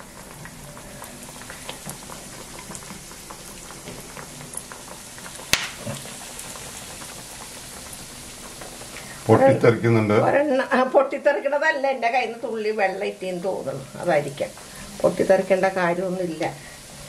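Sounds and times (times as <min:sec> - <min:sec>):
bread frying in oil: 0:00.0 - 0:17.0
oil spitting pop: 0:05.5 - 0:06.1.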